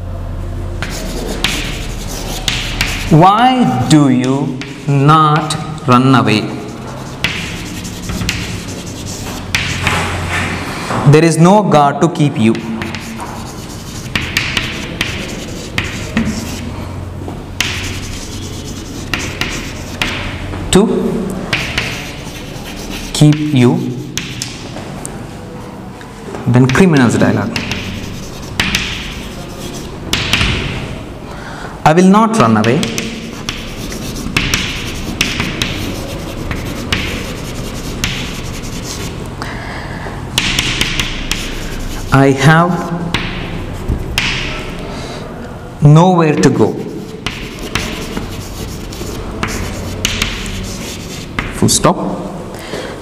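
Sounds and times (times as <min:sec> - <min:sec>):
steady low hum: 0:00.0 - 0:11.0, 0:12.0 - 0:26.3, 0:27.0 - 0:51.6
low background noise: 0:00.0 - 0:53.0
chalk scratching on chalkboard: 0:00.8 - 0:05.8, 0:06.4 - 0:10.4, 0:12.5 - 0:16.8, 0:17.6 - 0:20.5, 0:21.5 - 0:24.6, 0:26.6 - 0:30.8, 0:32.4 - 0:39.2, 0:40.4 - 0:44.5, 0:46.3 - 0:51.6
chalk tapping on chalkboard: 0:00.8 - 0:05.8, 0:06.4 - 0:10.6, 0:12.4 - 0:16.7, 0:17.6 - 0:20.5, 0:21.5 - 0:24.7, 0:26.6 - 0:30.9, 0:32.4 - 0:39.2, 0:40.4 - 0:44.6, 0:46.3 - 0:51.6.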